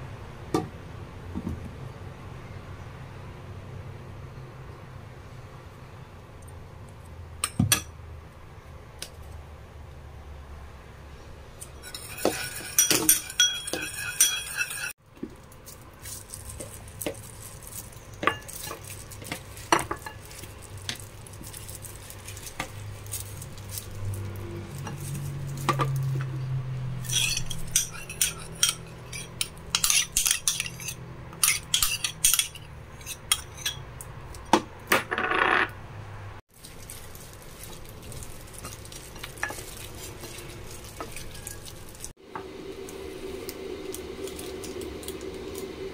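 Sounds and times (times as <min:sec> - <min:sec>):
seasoning shaker rattling: 0:11.6 - 0:26.2, 0:36.5 - 0:42.1
metal spoon clinking on ceramic bowls: 0:11.8 - 0:14.9, 0:27.0 - 0:33.8, 0:38.6 - 0:42.1.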